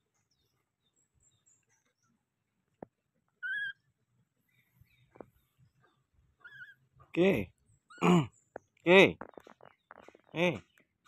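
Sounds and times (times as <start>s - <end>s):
baby monkey call: 3.4s - 3.9s, 6.4s - 6.8s.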